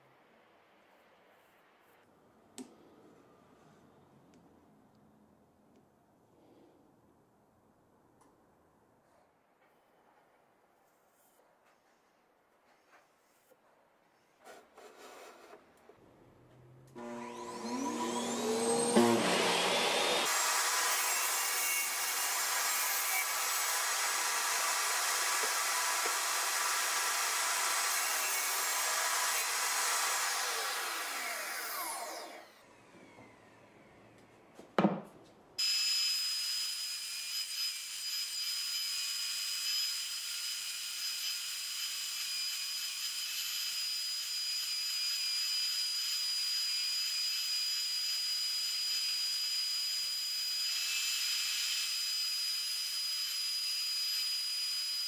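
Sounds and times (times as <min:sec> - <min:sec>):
bandsaw high whine: 0:17.0 - 0:33.6
table saw cutting wood: 0:17.0 - 0:33.6, 0:35.6 - 0:55.0
saw spinning down: 0:17.0 - 0:34.2.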